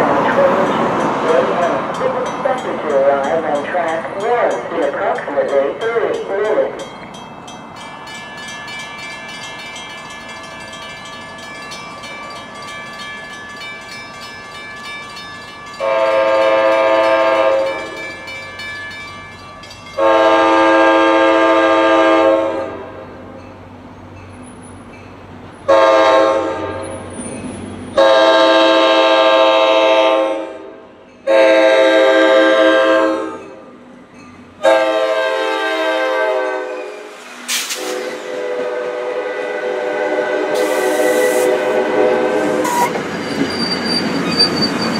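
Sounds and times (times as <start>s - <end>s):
approaching train rumble: 0.0s - 44.9s
train air horn blasts: 15.8s - 18.0s, 20.0s - 23.0s, 25.7s - 26.9s, 28.0s - 33.5s, 34.6s - 43.0s.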